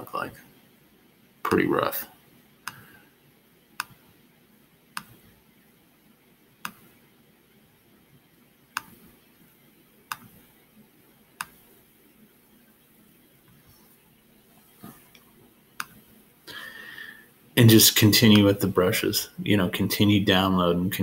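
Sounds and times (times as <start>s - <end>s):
mouse button clicking: 5.0s - 5.2s, 6.6s - 6.8s, 8.8s - 9.0s, 10.1s - 10.4s, 15.8s - 16.0s.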